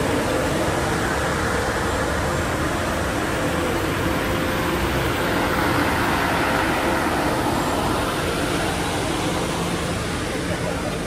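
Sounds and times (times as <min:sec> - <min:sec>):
passing vehicles rushing: 0:00.0 - 0:11.0.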